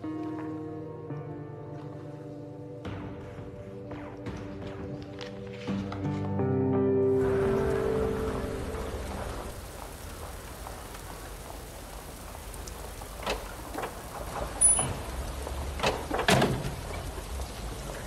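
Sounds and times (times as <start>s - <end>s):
music: 0.0s - 9.5s.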